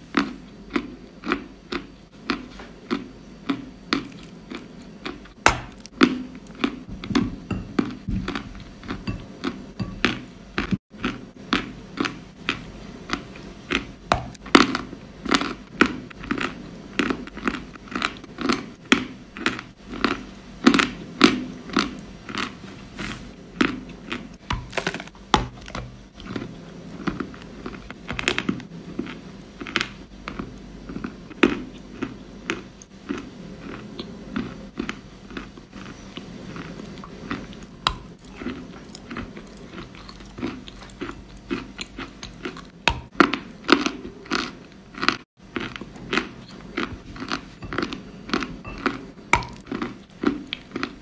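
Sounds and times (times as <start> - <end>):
crunchy cookie chewing: 0.0 - 51.0.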